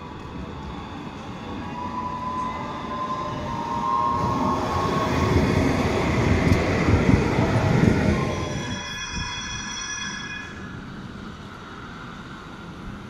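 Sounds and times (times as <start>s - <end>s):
tram rumbling on rails: 0.0s - 13.0s
thin high tone: 8.1s - 10.9s.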